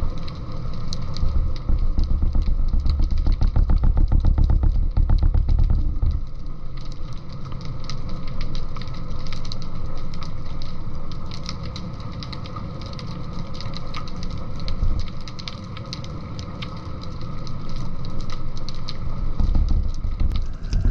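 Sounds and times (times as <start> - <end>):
underwater motor rumble: 0.0 - 11.3, 17.1 - 20.9
faint crackling clicks: 0.0 - 20.9.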